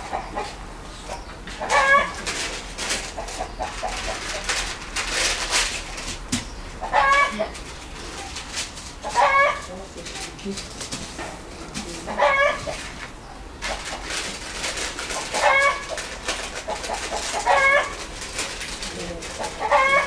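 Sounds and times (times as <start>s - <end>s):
chicken calling: 0.0s - 4.8s, 6.5s - 9.9s, 11.9s - 14.4s, 15.0s - 18.2s, 18.9s - 20.0s.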